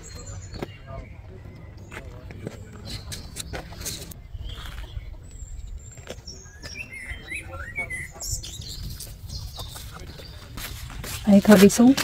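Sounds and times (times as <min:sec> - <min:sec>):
wind rumbling on microphone: 0:03.3 - 0:12.0.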